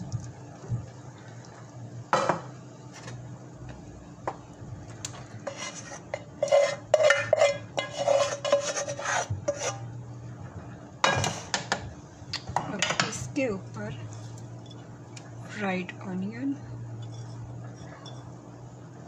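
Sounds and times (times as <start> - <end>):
spoon scraping a pot: 5.4 - 9.9, 17.0 - 18.4.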